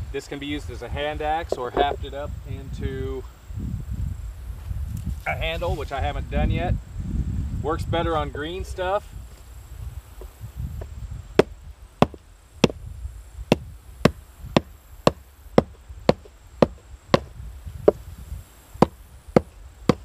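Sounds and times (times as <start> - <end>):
stone axe chopping branch: 14.1 - 17.3.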